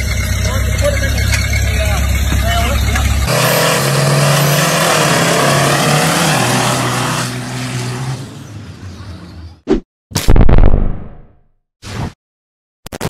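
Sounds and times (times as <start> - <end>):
diesel truck engine at full throttle: 0.0 - 9.4.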